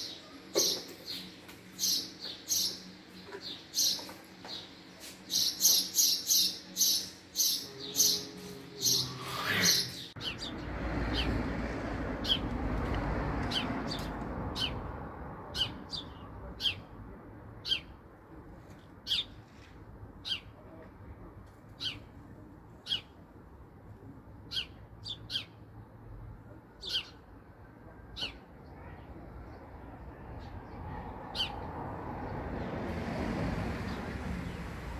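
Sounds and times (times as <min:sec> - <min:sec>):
sparrow chirping: 0:00.0 - 0:11.4, 0:12.2 - 0:12.5, 0:13.4 - 0:14.9, 0:15.5 - 0:17.0, 0:17.6 - 0:18.0, 0:19.0 - 0:19.4, 0:20.2 - 0:20.6, 0:21.8 - 0:22.1, 0:22.8 - 0:23.2, 0:24.4 - 0:25.7, 0:26.7 - 0:27.3, 0:28.1 - 0:31.7.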